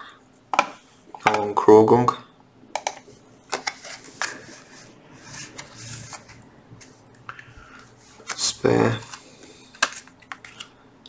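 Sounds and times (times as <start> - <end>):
cards rustling: 3.5 - 10.8.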